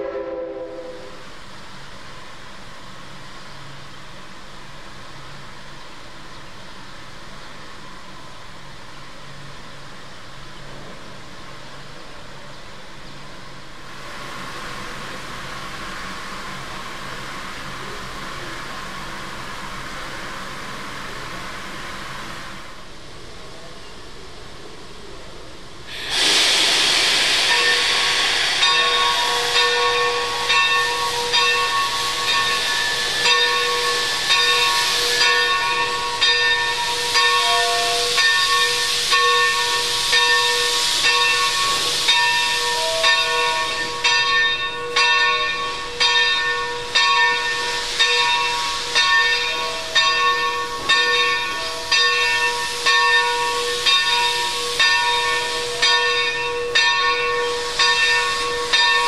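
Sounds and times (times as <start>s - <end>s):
steam hissing: 0.0s - 59.0s
locomotive bell ringing: 28.6s - 59.0s.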